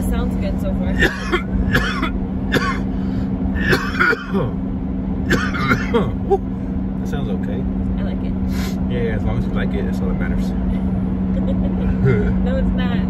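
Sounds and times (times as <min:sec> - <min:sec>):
car engine humming: 0:00.0 - 0:13.0
person coughing: 0:01.0 - 0:02.9, 0:03.6 - 0:04.6, 0:05.3 - 0:06.4.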